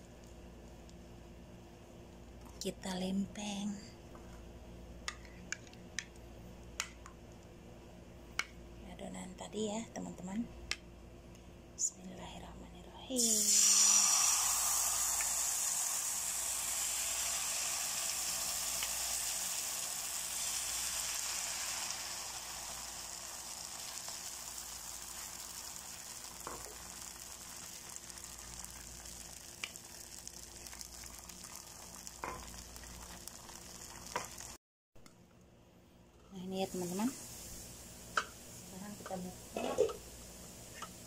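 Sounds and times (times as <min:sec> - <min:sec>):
batter sizzling in a frying pan: 0:13.2 - 0:34.6.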